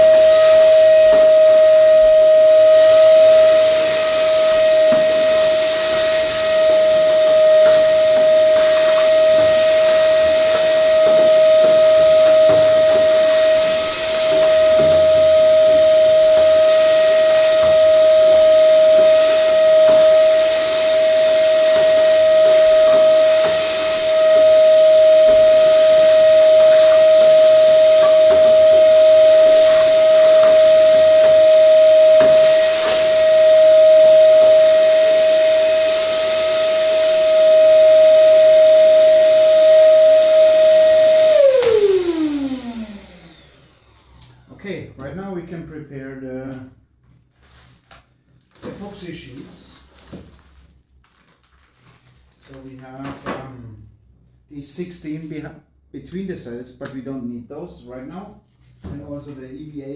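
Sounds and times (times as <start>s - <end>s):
vacuum cleaner running: 0.0s - 44.6s.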